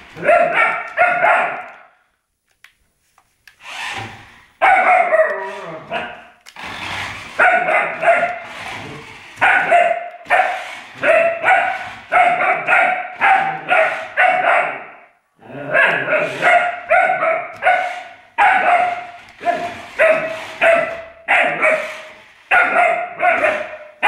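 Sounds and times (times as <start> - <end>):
puppy yapping: 0.1 - 1.9, 4.6 - 6.4, 7.4 - 8.5, 9.4 - 24.0.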